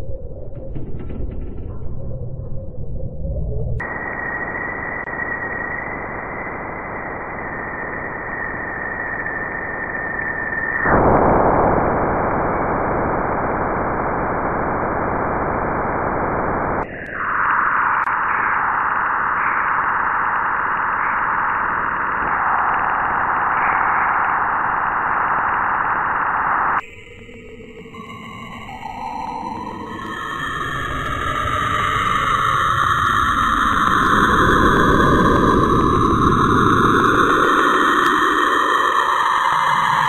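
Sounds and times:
dense static-like hiss: 10.9s - 26.8s.

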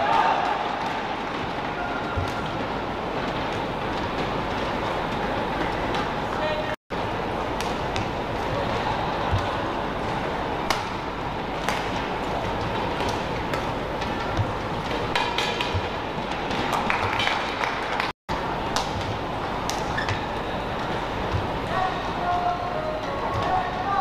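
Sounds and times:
racket hitting shuttlecock: 7.5s - 8.2s, 9.3s - 11.0s, 11.6s - 17.4s
shoes squeaking on court: 18.8s - 21.6s.

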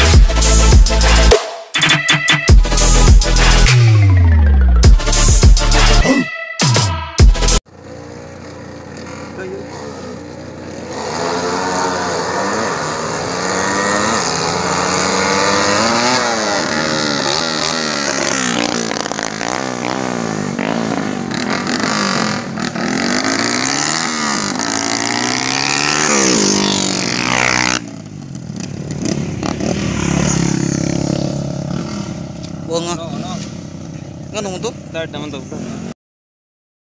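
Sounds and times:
motorcycle engines revving: 7.6s - 36.0s.

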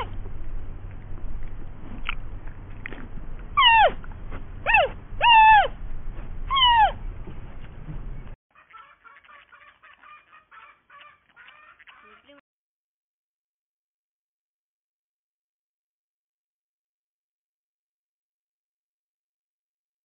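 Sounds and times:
low rumble: 0.0s - 8.4s.

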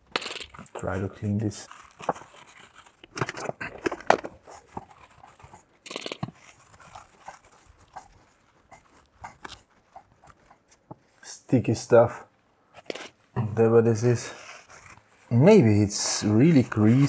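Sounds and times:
paper towel rubbing and crinkling: 0.7s - 3.0s, 13.6s - 17.0s.

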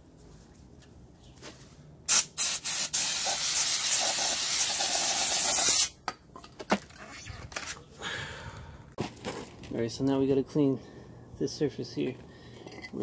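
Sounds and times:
aerosol spray hissing: 2.1s - 5.9s.

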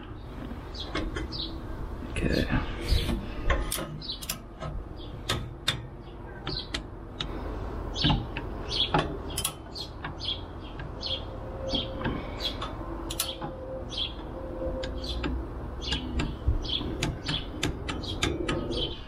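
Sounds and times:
small birds chirping: 0.0s - 19.0s
hand tools clicking on metal: 11.8s - 13.6s.

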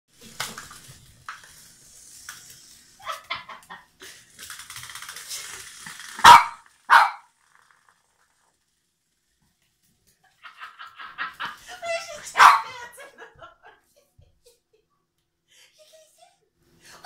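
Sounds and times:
dog barking: 6.2s - 7.3s, 12.4s - 12.8s
dog yipping: 6.2s - 7.3s, 12.3s - 12.8s.

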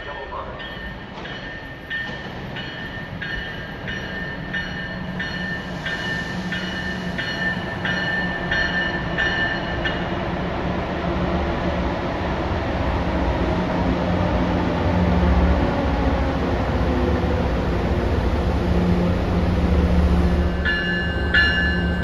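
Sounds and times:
train warning bell ringing: 0.0s - 10.1s, 20.4s - 22.0s
rumble of wheels on rail: 0.0s - 22.0s.

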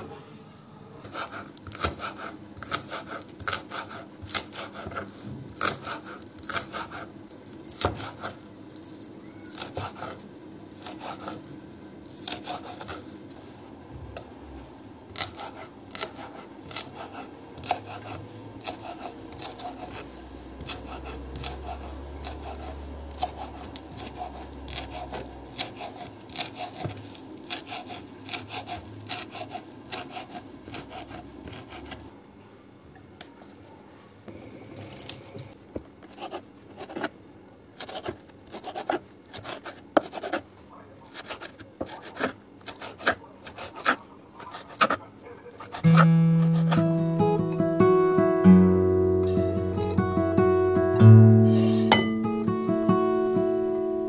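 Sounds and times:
knife chopping herbs on a board: 1.1s - 8.4s, 9.4s - 13.2s, 15.1s - 32.1s, 37.8s - 40.5s, 41.1s - 46.8s.

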